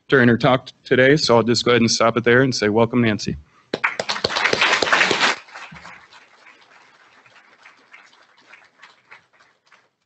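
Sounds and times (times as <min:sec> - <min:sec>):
audience applause: 0:03.7 - 0:10.0.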